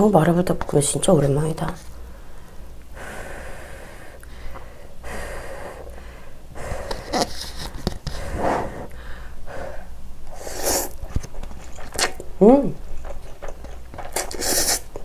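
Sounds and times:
airy breathing: 2.0 - 10.6
woman slurping noodles: 10.3 - 11.0, 14.1 - 14.9.

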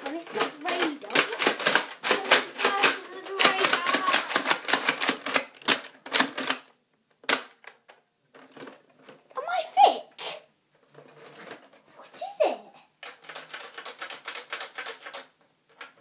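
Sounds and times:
plastic toy blasters clicking: 0.0 - 8.0, 13.0 - 16.0.

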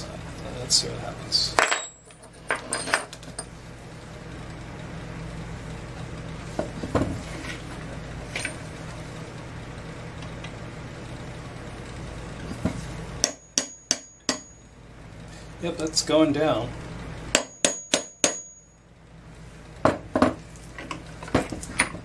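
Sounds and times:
steady low hum: 0.0 - 22.0
hammer tapping metal punch: 13.2 - 14.6, 17.3 - 18.7.

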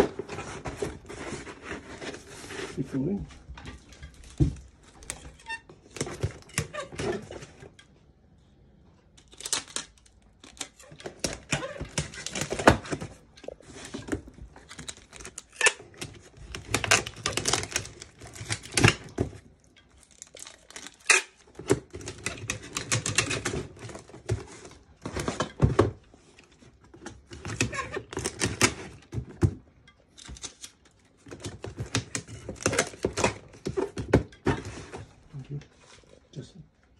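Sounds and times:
cardboard boxes rustling: 0.0 - 7.7
packing tape tearing: 9.2 - 13.1, 14.6 - 19.4, 20.0 - 24.6.

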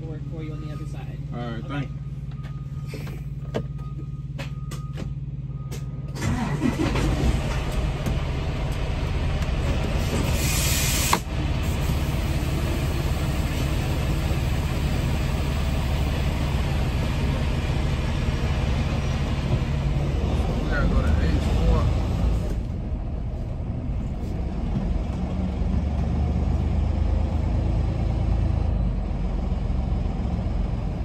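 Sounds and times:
truck engine running: 0.0 - 31.0
air hiss burst: 10.0 - 12.2.

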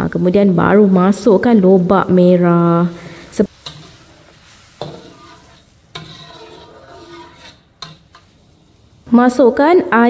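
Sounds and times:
sizzling bubbling: 0.0 - 10.0
utensil stirring sauce in pan: 3.0 - 9.1.

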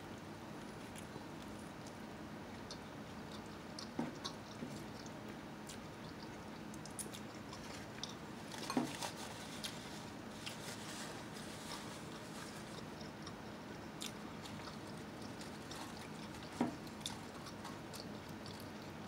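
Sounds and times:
person chewing: 0.6 - 19.0.

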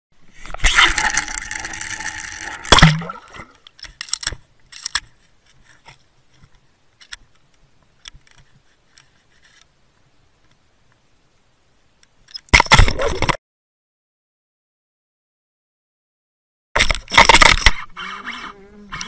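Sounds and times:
faint underwater clicks and rattles: 3.3 - 11.0.

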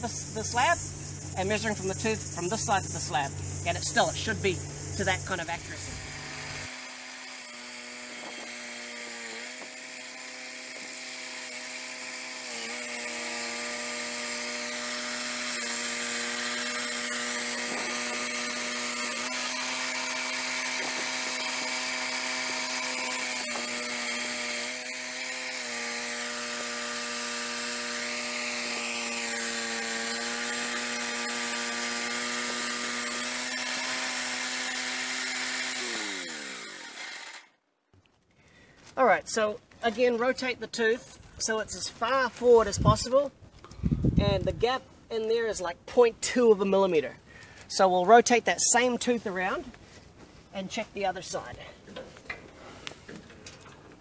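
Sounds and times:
sawmill engine cutting log: 5.2 - 37.5.

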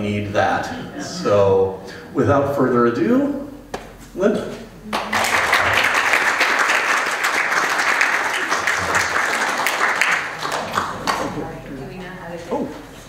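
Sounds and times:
audience applauding: 4.9 - 11.6.

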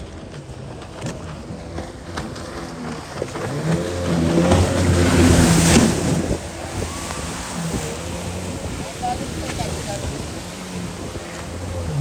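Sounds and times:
jet ski engine running: 0.0 - 12.0.

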